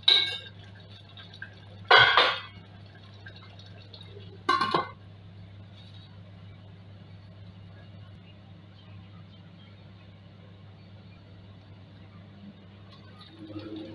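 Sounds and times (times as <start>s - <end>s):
metal lid clattering on pot: 4.5s - 5.0s.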